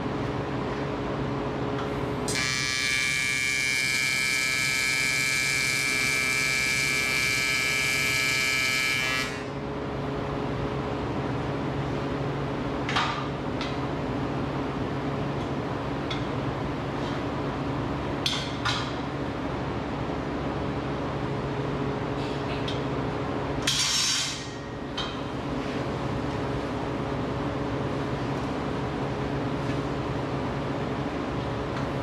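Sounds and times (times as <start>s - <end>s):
welding arc buzzing: 2.3s - 9.5s.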